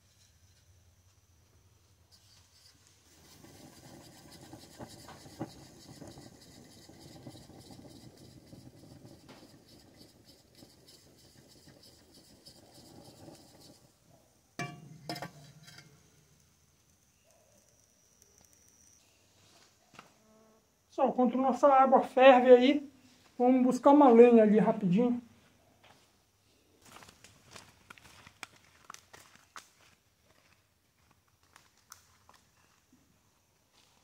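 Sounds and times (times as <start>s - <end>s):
faint scraping and rustling: 0.0s - 20.6s
metallic clanks: 14.6s - 16.0s.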